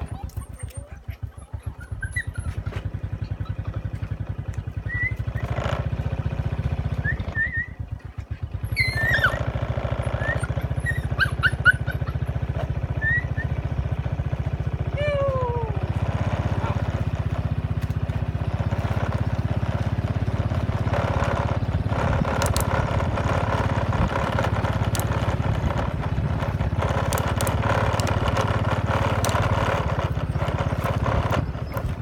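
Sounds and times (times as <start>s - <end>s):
dogs squeaking: 0.0s - 5.7s, 7.0s - 13.6s, 26.8s - 32.0s
small motorbike engine idling: 0.0s - 32.0s.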